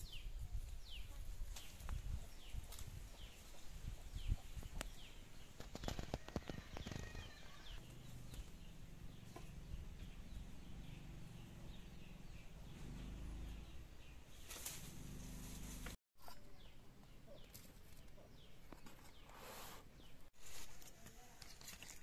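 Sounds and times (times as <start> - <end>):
bird chirping: 0.0 - 20.3
rustling: 14.3 - 16.0, 20.4 - 22.0.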